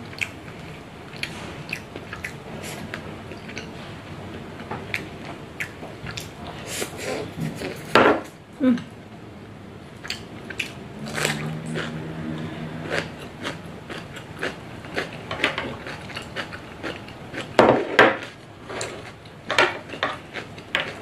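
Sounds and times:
chewing: 0.0s - 3.7s, 10.0s - 12.0s, 12.8s - 17.6s.

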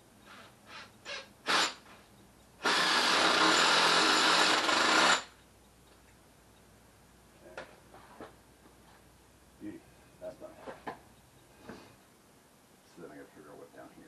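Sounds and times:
power drill running: 0.7s - 1.8s, 2.6s - 5.4s.

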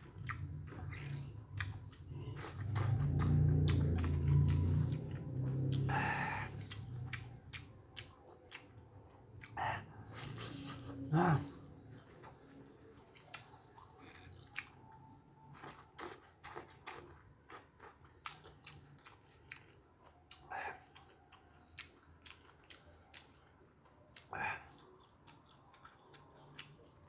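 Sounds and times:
wet chewing: 0.0s - 27.0s
lip smacks: 0.2s - 11.0s.

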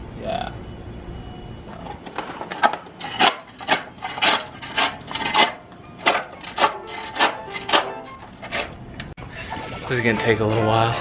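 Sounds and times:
shovel digging into gravel: 1.9s - 8.8s.

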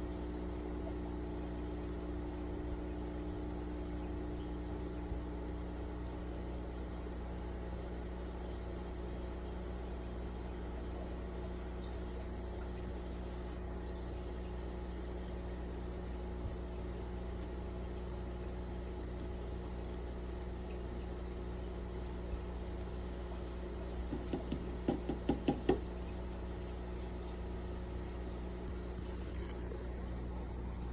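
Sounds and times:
aquarium equipment humming: 0.0s - 30.9s
knocks: 24.1s - 25.8s.

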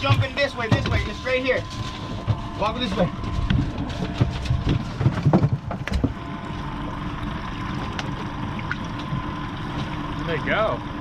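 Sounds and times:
knocks and thumps: 0.0s - 1.2s, 3.2s - 6.2s
outboard motors running: 0.0s - 11.0s.

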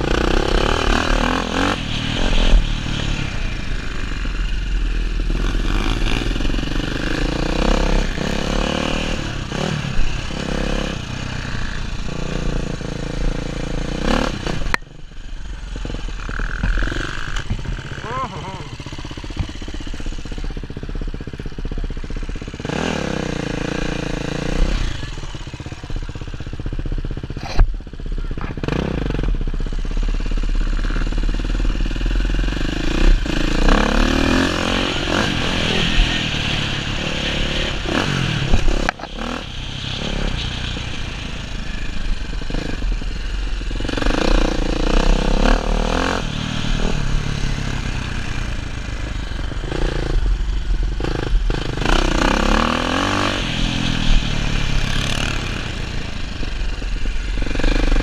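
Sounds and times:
bike rattling: 0.0s - 24.0s
dirt bike engine revving: 0.0s - 25.9s, 28.6s - 58.0s.

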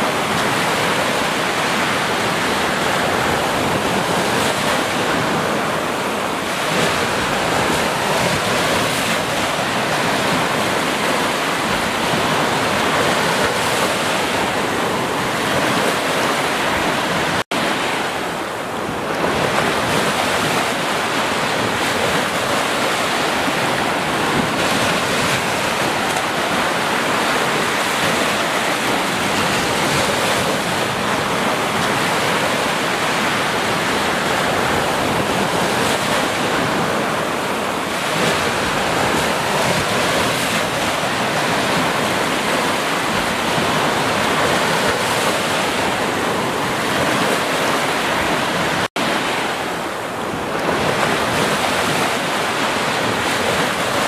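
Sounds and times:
small waves breaking on beach: 0.0s - 54.0s.

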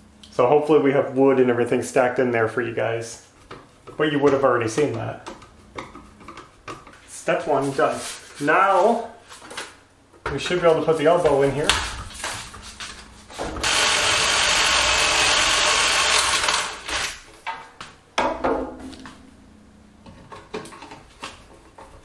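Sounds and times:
cordless drill drilling into metal: 13.6s - 17.2s.

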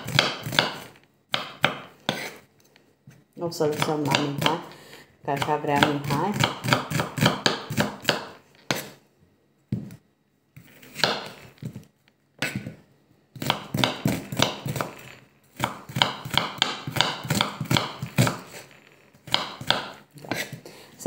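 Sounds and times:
knife chopping on wooden board: 0.0s - 2.4s, 3.7s - 4.7s, 5.4s - 9.0s, 10.8s - 11.8s, 13.4s - 15.0s, 15.6s - 20.6s.

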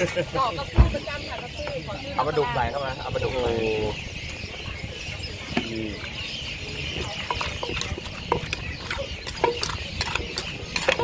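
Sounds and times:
wooden pestle pounding in mortar: 7.3s - 11.0s.

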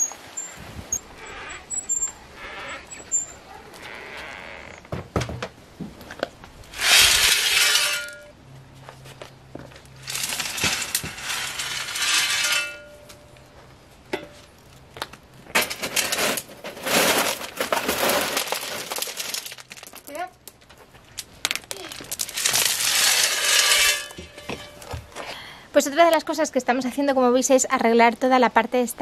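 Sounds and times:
pebbles clattering and rattling: 6.7s - 8.2s, 10.0s - 13.0s, 15.5s - 25.1s.

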